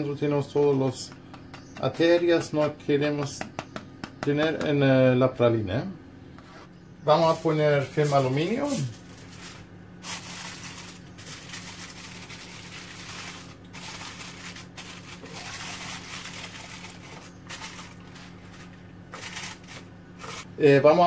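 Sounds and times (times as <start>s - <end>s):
aluminium foil crinkling: 7.2s - 20.5s.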